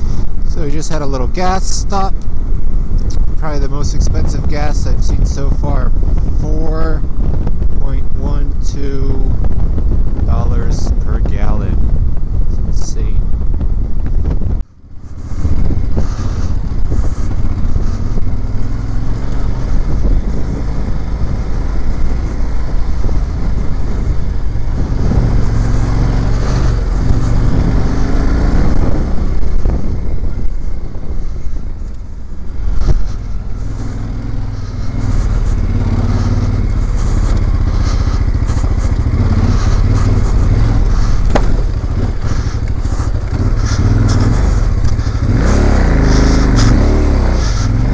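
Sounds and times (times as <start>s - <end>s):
motorcycle engine revving: 0.0s - 47.9s
knocks from bumpy ground: 41.3s - 41.7s.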